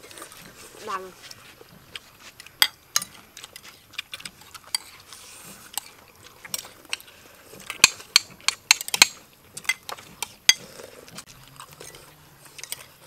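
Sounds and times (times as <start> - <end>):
chewing: 0.0 - 13.0
spoons clinking on plates: 12.6 - 13.0.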